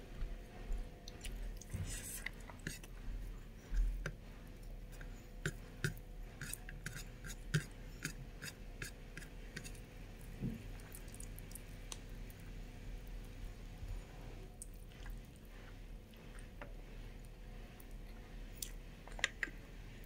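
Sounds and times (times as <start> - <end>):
person chewing food: 0.2 - 13.3, 14.5 - 16.8.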